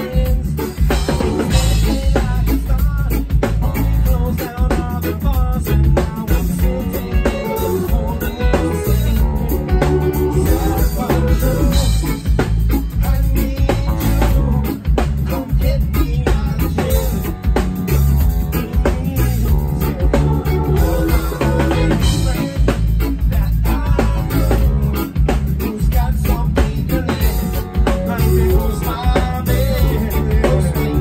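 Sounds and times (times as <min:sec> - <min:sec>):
man singing into microphone: 0:00.0 - 0:17.6, 0:18.4 - 0:31.0
drum kit: 0:00.0 - 0:31.0
electric guitar: 0:00.0 - 0:31.0
live ska band playing: 0:00.0 - 0:31.0.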